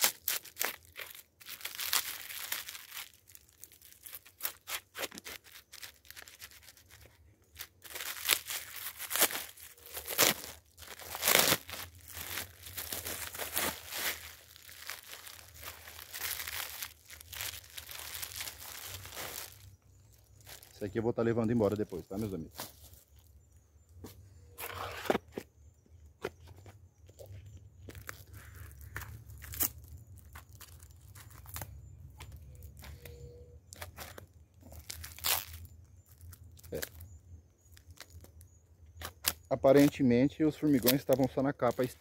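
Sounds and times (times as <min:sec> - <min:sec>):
plastic bag crinkling and tearing: 0:00.0 - 0:20.8, 0:27.9 - 0:37.0.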